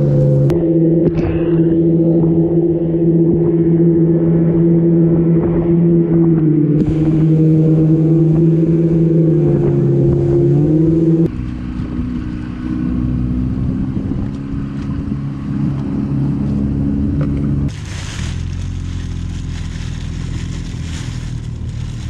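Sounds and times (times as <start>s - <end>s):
outboard motor running: 0.0s - 11.6s, 17.2s - 22.0s
wind on microphone: 0.0s - 12.5s, 13.2s - 16.2s.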